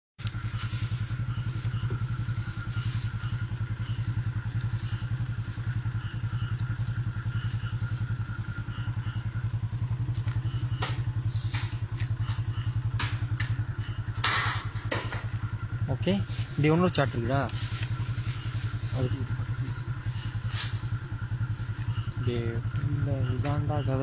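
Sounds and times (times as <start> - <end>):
motorcycle engine idling: 0.2 - 24.0
sharp clicks and knocks: 14.2 - 15.5.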